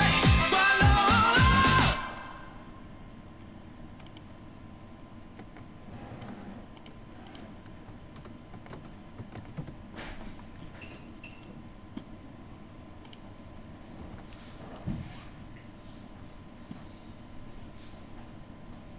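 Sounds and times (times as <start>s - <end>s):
computer keyboard keystrokes: 6.8s - 9.8s.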